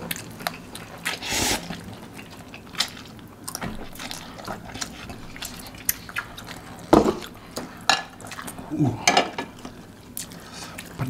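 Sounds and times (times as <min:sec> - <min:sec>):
man slurping and chewing noodles: 0:00.0 - 0:06.9.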